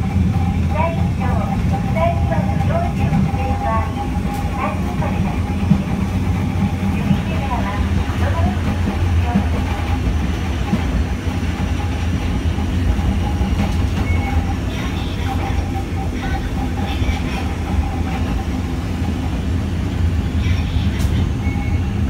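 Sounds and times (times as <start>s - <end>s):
streetcar rumble with whine: 0.0s - 22.0s.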